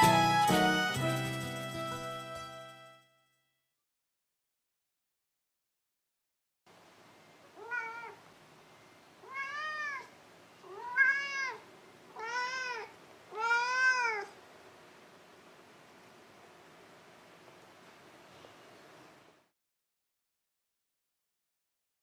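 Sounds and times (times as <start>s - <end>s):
cat meowing: 7.5s - 8.2s, 9.2s - 14.4s.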